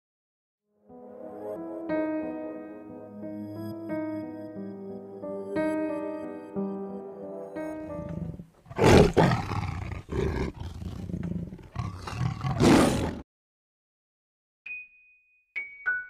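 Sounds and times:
musical notes: 0.7 - 8.6
tiger growling: 7.9 - 13.2
tiger roaring: 7.9 - 13.2.

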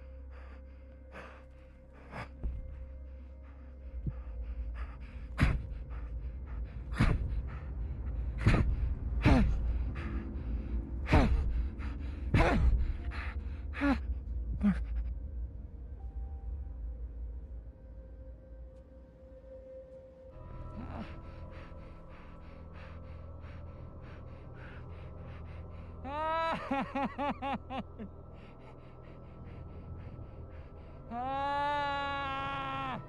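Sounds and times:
low steady rumble: 0.0 - 18.9
man gasping for breath: 0.3 - 15.1.

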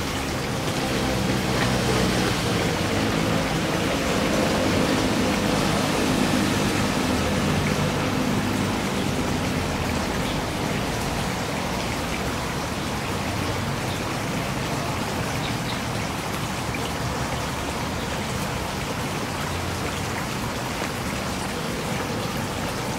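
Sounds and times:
water trickling into a pond: 0.0 - 22.9.

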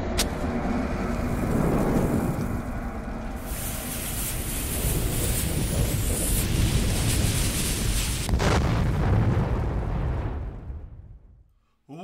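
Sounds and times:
low rumble: 0.0 - 11.5
burning fuse hiss: 3.4 - 8.4.

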